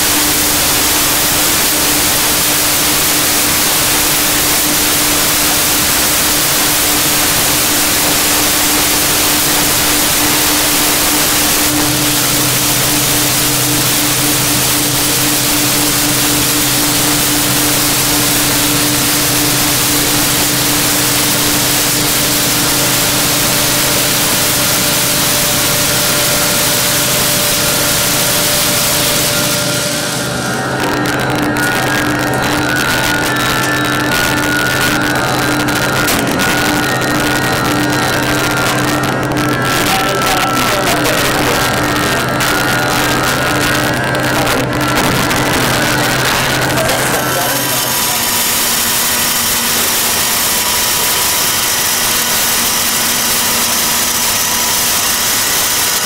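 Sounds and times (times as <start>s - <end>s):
low hum: 0.0s - 56.0s
steady hum: 0.0s - 56.0s
welding arc hissing: 0.0s - 56.0s.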